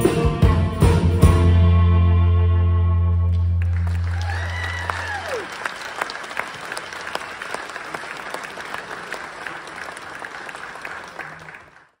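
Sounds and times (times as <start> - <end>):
audience applauding: 3.3 - 12.0.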